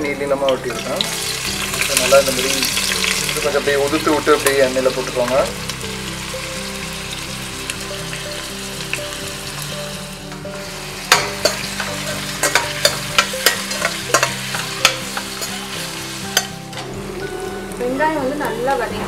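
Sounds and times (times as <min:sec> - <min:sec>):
onions sizzling in hot oil: 0:00.0 - 0:19.0
metal spoon scraping a pot: 0:10.6 - 0:16.6.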